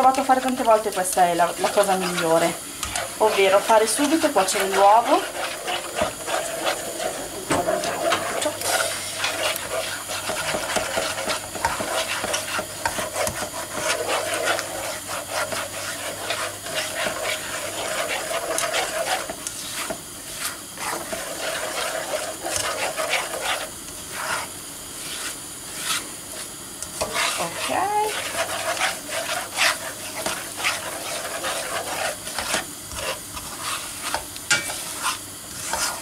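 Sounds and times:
eggs sizzling in oil: 0.0 - 36.0
spatula scraping frying pan: 0.0 - 36.0.

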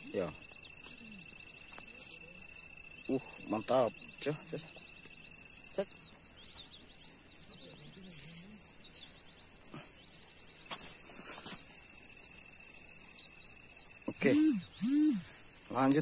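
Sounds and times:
night insects chorus: 0.0 - 16.0.

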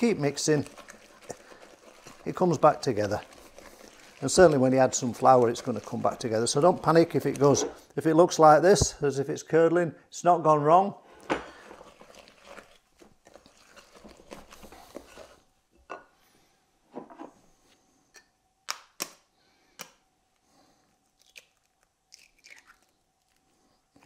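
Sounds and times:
spoon stirring batter in bowl: 0.0 - 7.6, 11.5 - 15.5.

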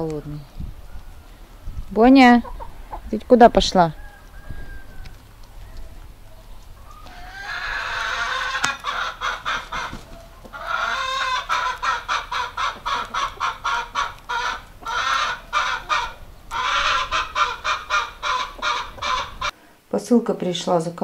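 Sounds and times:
hens clucking and cackling: 0.6 - 19.6.

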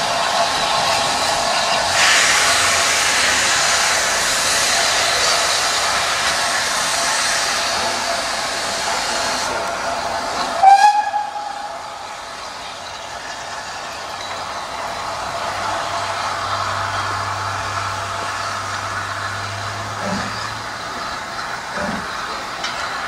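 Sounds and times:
loud hiss of steam: 0.0 - 23.0
steam whistle blast: 10.6 - 11.8.

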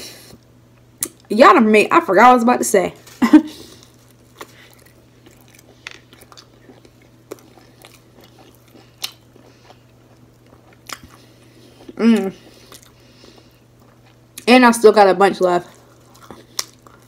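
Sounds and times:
chewing crispy fried food: 3.0 - 14.6, 15.6 - 17.0.

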